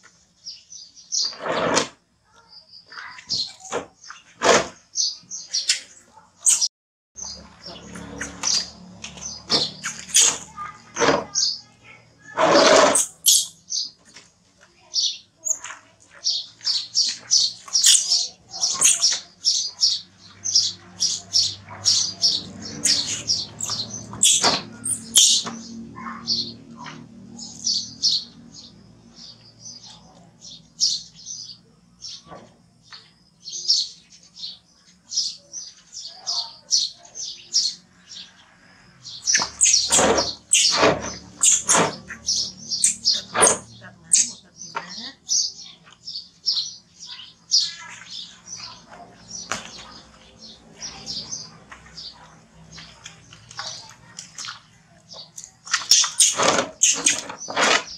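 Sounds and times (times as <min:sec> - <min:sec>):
infant monkey squeaking cries: 0:22.8 - 0:25.4.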